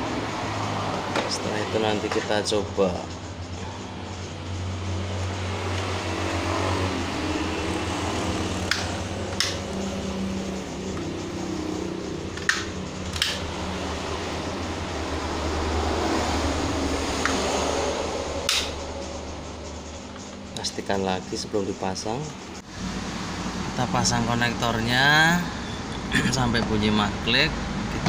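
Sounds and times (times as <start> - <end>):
steady background hum: 0.0 - 27.6
plastic parts snapping together: 12.4 - 13.4.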